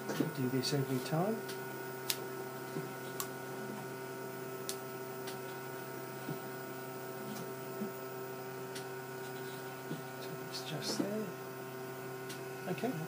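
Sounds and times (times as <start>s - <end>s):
machine humming: 0.0s - 13.0s.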